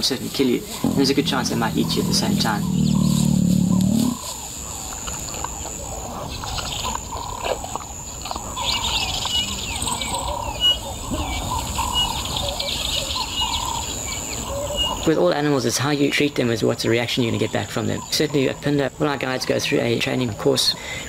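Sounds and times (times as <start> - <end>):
high insect drone: 0.0 - 10.7
birds calling and chirping: 0.0 - 21.0
lion growling: 0.6 - 4.4.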